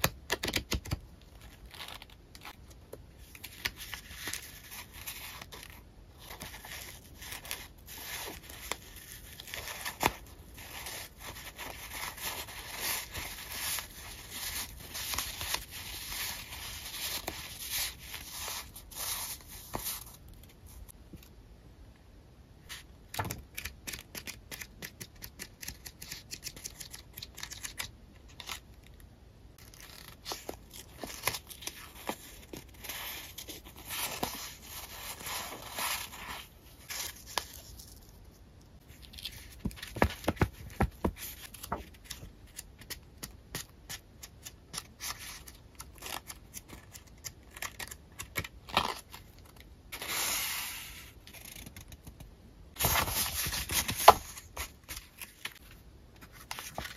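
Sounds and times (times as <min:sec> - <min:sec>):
paper rustling: 0:52.7 - 0:56.9.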